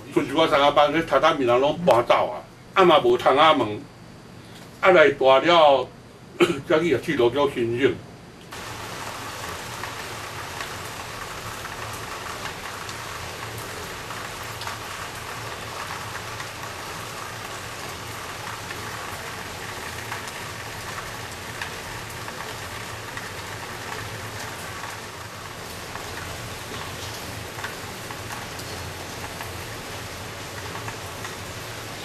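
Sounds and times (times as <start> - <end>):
rain on a tiled roof: 8.5 - 32.0.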